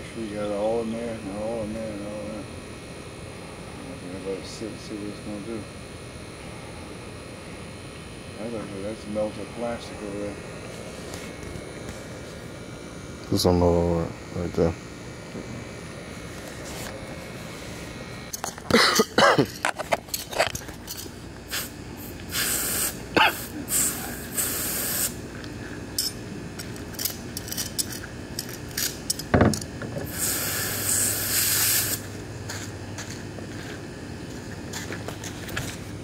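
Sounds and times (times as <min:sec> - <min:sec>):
spray hissing in bursts: 0:21.5 - 0:25.2, 0:30.0 - 0:32.2.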